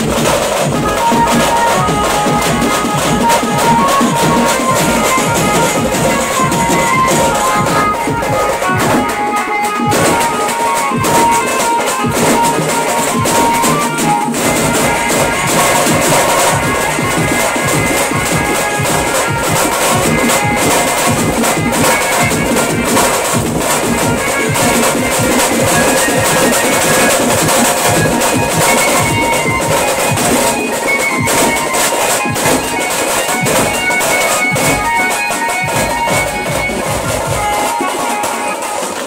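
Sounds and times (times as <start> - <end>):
keyboard melody of held notes: 0.0 - 39.0
rapid dense drumming: 0.0 - 39.0.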